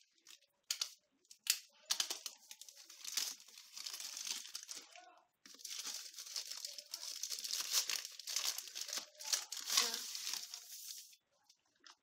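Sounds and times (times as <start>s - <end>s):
plastic bag crinkling and tearing: 1.7s - 11.1s.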